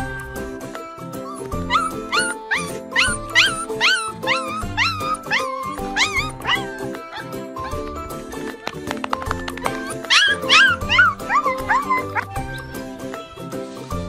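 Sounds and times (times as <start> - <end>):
background music: 0.0 - 14.0
puppy yipping: 1.2 - 8.0, 9.5 - 12.8.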